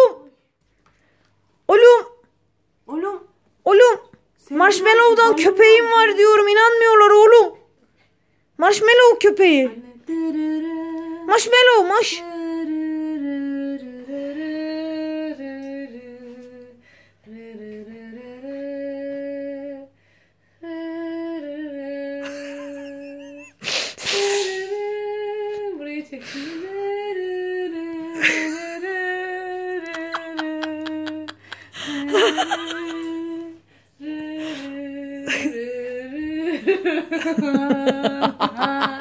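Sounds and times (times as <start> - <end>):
woman humming: 20.6 - 39.0.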